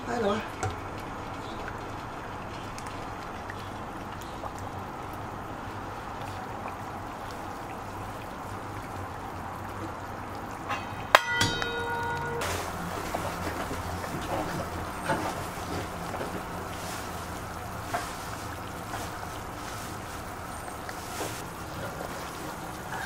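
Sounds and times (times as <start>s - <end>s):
water boiling in a pot: 0.0s - 23.0s
sharp metallic clang: 10.7s - 12.7s.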